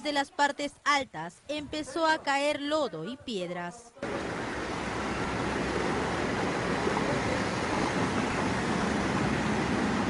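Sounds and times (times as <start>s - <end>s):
floodwater rushing down a street: 4.0s - 10.0s.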